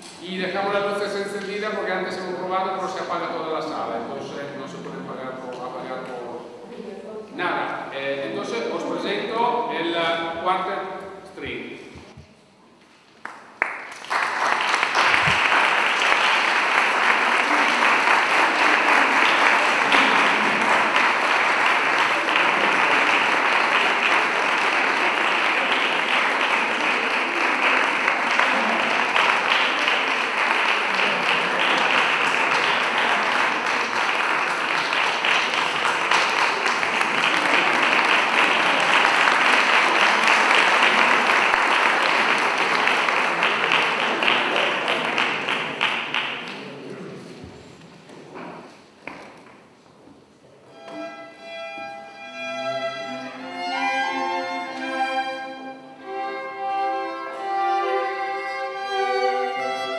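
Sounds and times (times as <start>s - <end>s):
audience applauding: 13.2s - 46.8s.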